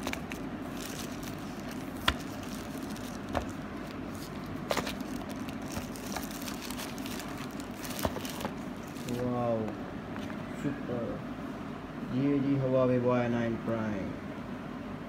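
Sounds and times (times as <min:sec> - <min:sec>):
plastic wrap rustling: 0:00.0 - 0:09.3.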